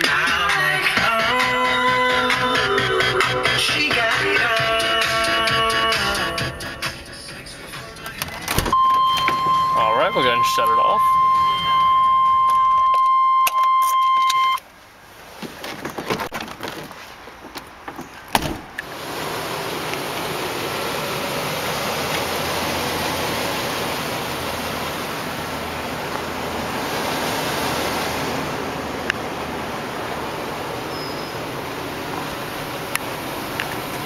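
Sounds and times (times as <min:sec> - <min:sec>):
van engine idling: 0:18.8 - 0:34.0.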